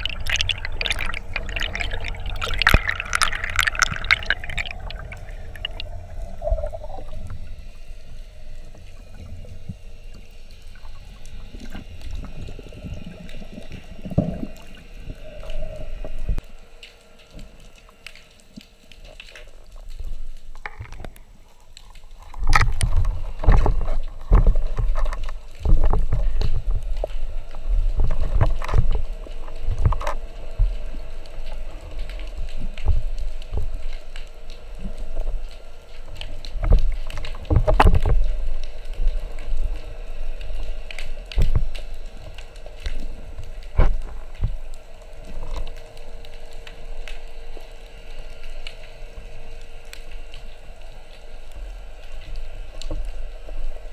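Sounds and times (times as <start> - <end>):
water rushing past: 0.0 - 9.1
faint steady hum: 0.0 - 53.9.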